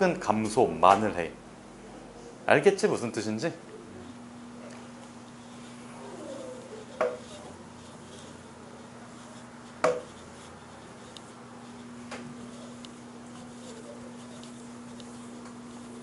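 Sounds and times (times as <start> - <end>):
steady low hum: 0.0 - 16.0
eraser wiping a chalkboard: 5.2 - 16.0
sharp knocks: 9.8 - 10.1.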